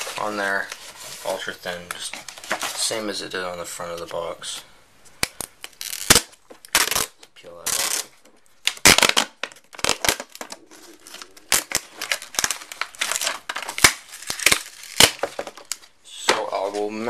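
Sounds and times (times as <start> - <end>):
plastic packaging crinkling: 5.4 - 17.0.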